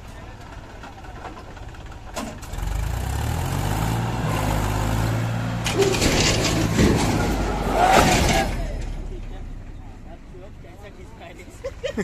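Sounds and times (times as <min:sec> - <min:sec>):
tractor diesel engine revving: 0:00.4 - 0:09.6
clattering: 0:05.6 - 0:09.0.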